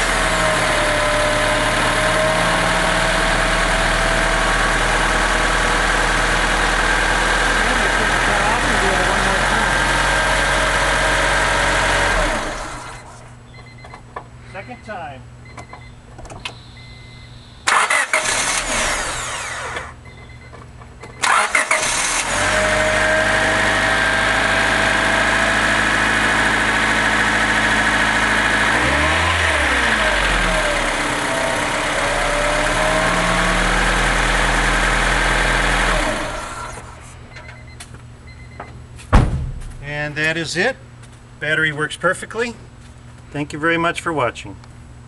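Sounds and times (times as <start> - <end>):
car engine idling: 2.6 - 13.1
car starter cranking: 17.7 - 20.0, 21.2 - 22.4.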